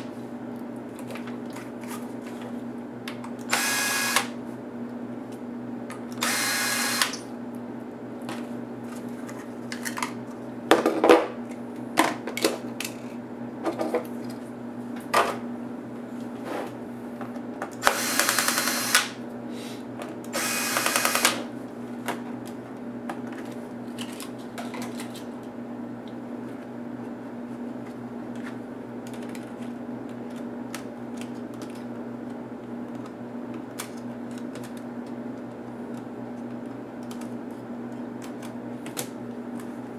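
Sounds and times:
cordless drill whirring: 3.5 - 4.3, 6.2 - 7.2, 17.8 - 19.1, 20.4 - 21.4.

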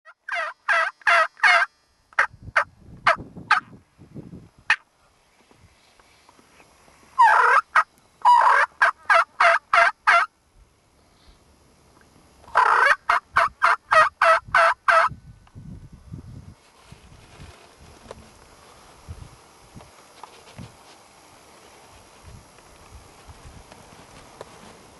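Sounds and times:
turkey yelping: 0.3 - 3.6, 7.2 - 10.3, 12.5 - 15.1
soft rustling: 16.6 - 19.1, 19.8 - 24.9.

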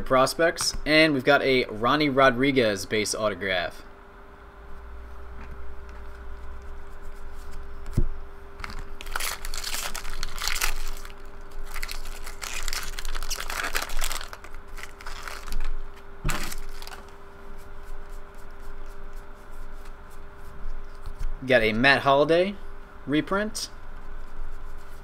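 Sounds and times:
cards flipped through by hand: 7.3 - 17.2
foil wrapper crinkling: 8.6 - 17.2.

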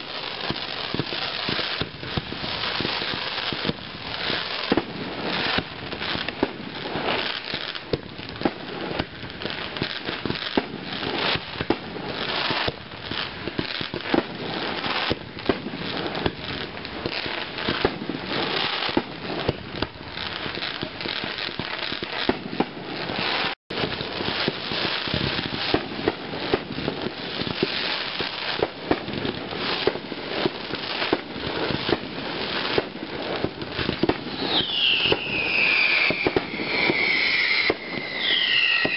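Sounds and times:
firework shell bursts and crackling: 0.0 - 38.9
sharp firework reports: 31.1 - 38.9.

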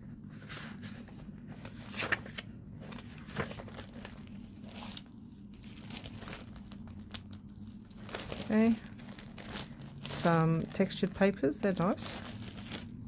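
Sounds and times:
paper rustling: 0.3 - 13.0
plastic bag crinkling: 2.9 - 13.0.

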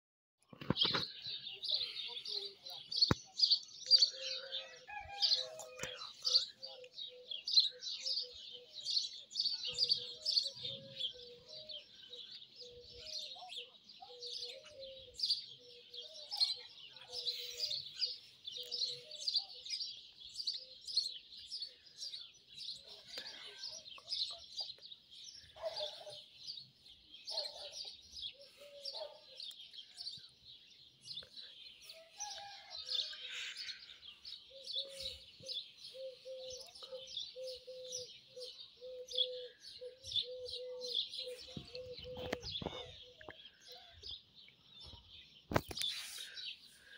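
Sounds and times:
small birds chirping chorus: 0.4 - 46.9.

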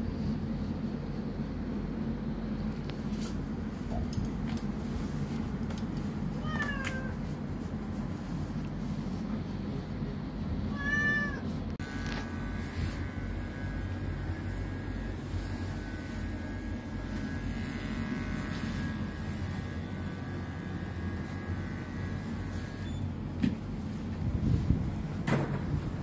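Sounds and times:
electric hair clipper whining: 11.8 - 23.2.

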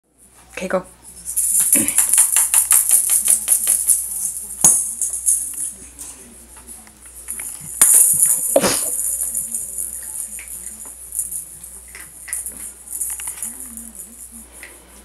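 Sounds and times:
rapid jingling rattle: 7.2 - 14.4.

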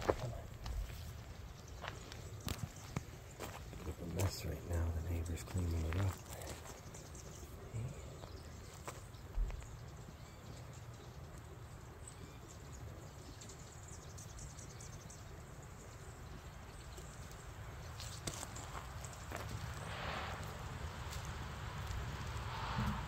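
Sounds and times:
steady low rumble: 19.4 - 23.0.

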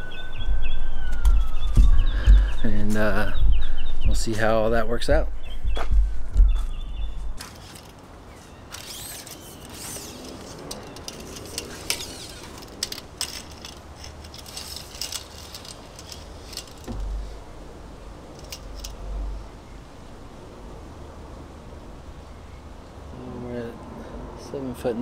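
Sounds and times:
low rumbles: 0.0 - 7.9, 10.0 - 22.2
tape measure blade rattling: 7.4 - 8.1, 8.7 - 17.3, 18.3 - 19.0
tape measure scraping: 7.4 - 17.3, 18.4 - 19.0.

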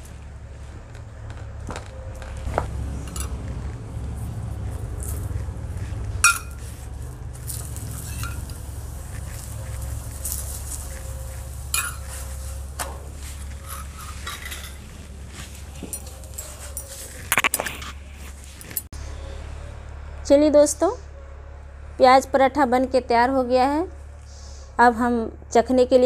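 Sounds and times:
low steady rumble: 0.0 - 26.0
spoon clinking on steel bowl: 6.2 - 6.6, 8.0 - 8.6, 11.7 - 12.4
spoon scraping on iron griddle: 6.2 - 18.9.

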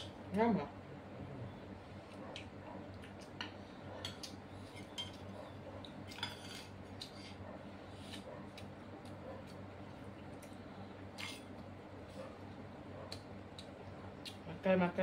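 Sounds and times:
low steady hum: 0.0 - 15.0
spoons clinking on plates: 3.4 - 5.2, 6.1 - 7.2.

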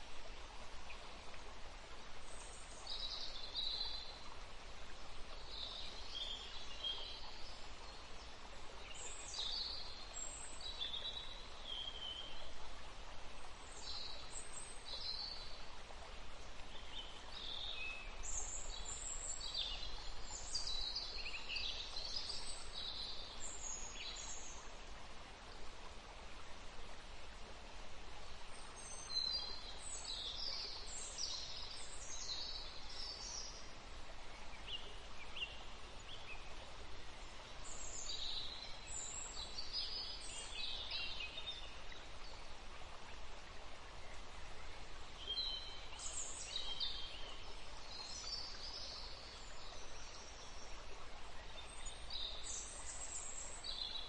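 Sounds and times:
steady faint hiss: 0.0 - 54.0.

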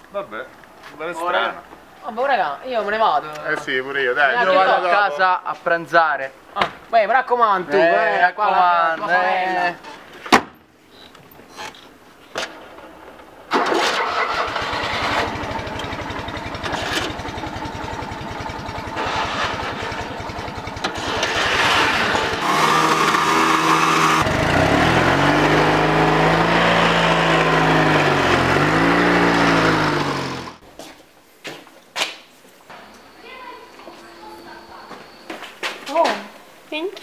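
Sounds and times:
car engine starting and running: 13.5 - 30.6.

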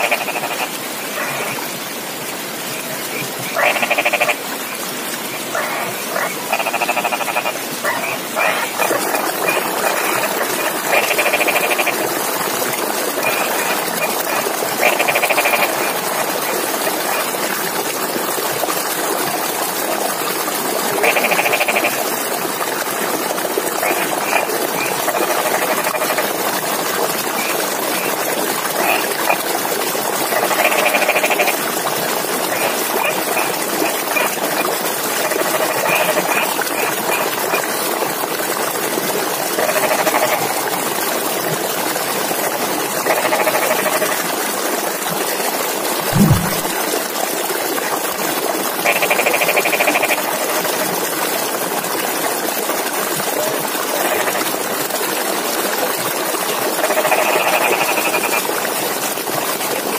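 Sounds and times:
frogs croaking: 0.0 - 1.6, 2.7 - 12.1, 13.1 - 17.3, 21.0 - 22.0, 23.8 - 26.4, 27.3 - 29.5, 30.3 - 31.7, 32.4 - 37.7, 39.6 - 40.7, 42.5 - 44.2, 48.8 - 50.8, 54.0 - 54.5, 56.8 - 58.5.

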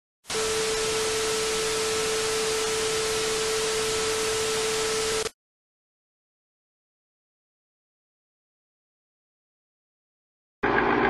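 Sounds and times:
static hiss: 0.3 - 5.3
steady electronic tone: 0.3 - 5.3.

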